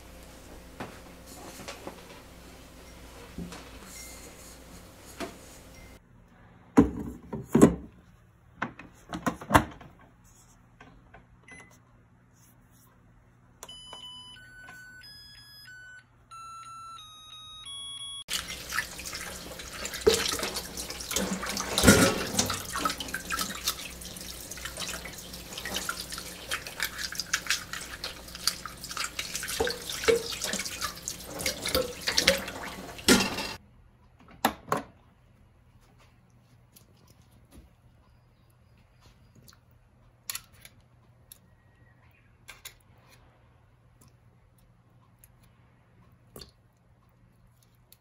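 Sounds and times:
rice cooker beep melody: 13.6s - 18.3s
water splashing in a sink: 18.3s - 33.6s.

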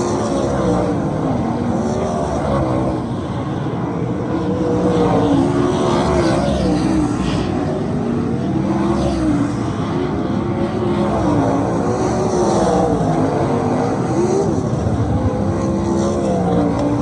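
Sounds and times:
race car engines roaring: 0.0s - 17.0s
race car passing close by: 0.0s - 17.0s.

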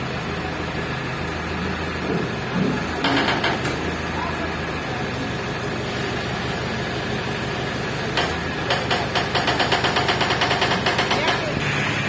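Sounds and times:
crane engine humming: 0.0s - 12.0s
fast even rattle: 8.2s - 11.6s.

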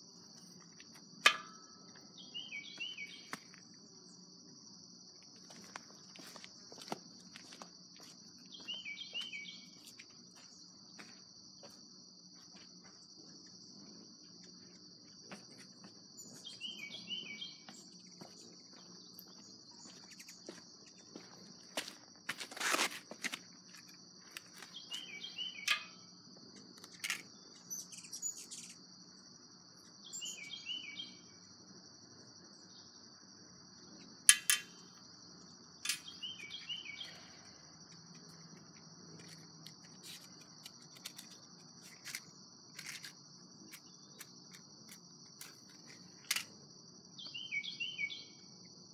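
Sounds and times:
insects droning: 0.0s - 48.9s
handling clicks and rustles: 38.0s - 46.5s.

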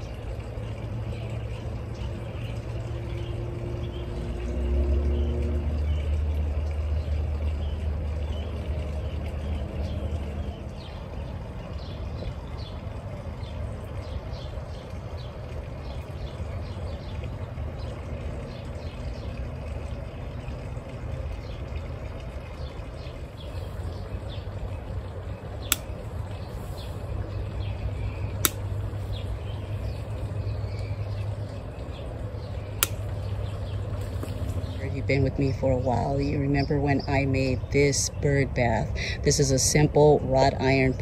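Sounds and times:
pruning shears snipping stems: 25.7s - 25.9s, 28.4s - 28.7s, 32.8s - 33.0s.

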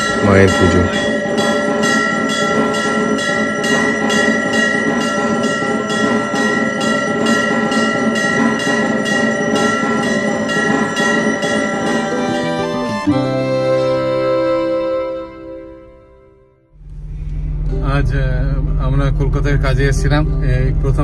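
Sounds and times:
temple bells ringing: 0.0s - 16.3s.

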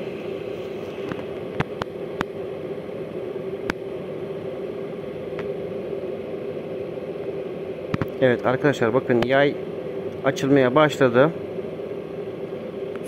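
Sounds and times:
electric kettle hum and hiss: 0.0s - 13.0s.

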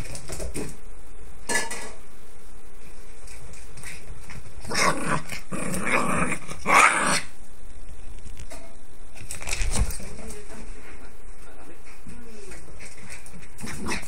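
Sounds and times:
dog growling in play: 4.6s - 7.3s, 13.6s - 14.0s.

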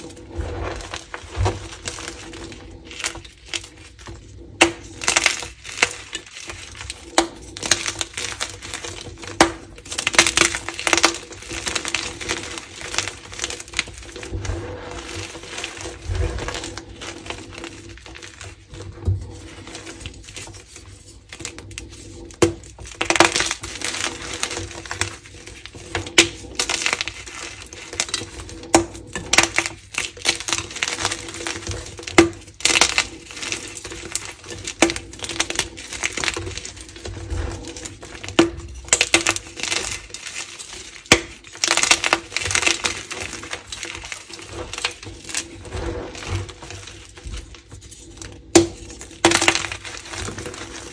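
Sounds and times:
chalk crunching and crackling: 0.0s - 50.9s.

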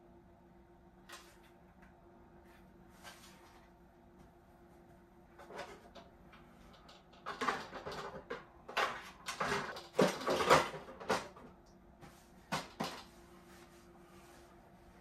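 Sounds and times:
plastic car body rustling and knocking: 7.2s - 11.6s.

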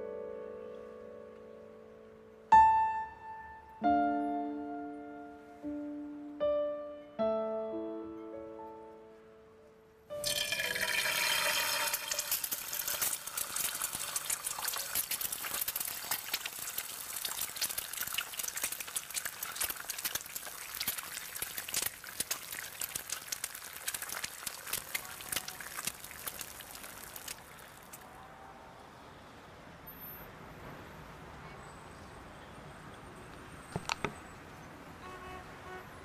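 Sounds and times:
running splashing water: 10.2s - 28.0s.

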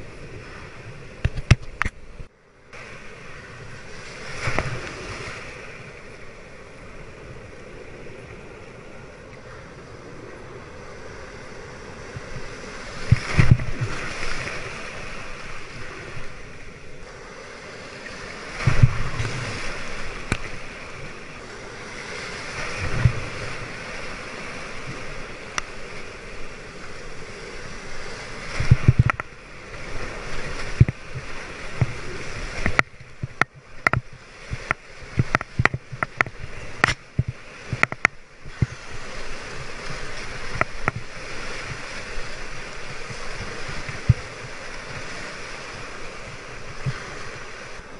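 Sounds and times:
surf rushing and splashing: 0.0s - 47.9s
water thumping the camera: 1.2s - 2.9s, 12.1s - 16.4s, 18.6s - 20.8s, 22.6s - 23.7s, 28.5s - 29.4s, 30.4s - 45.2s, 46.5s - 47.8s.

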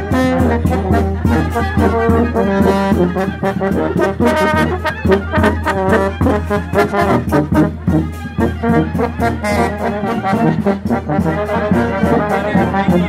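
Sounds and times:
brass band playing: 0.0s - 13.0s.

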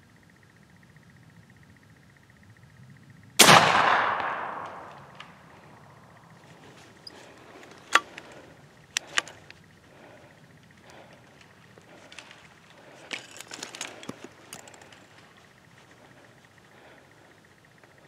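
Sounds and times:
air rifle shot: 3.4s - 5.2s.

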